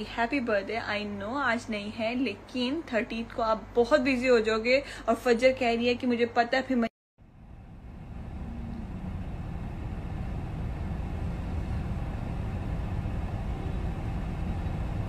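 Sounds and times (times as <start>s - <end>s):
traffic rumble: 7.2s - 15.0s.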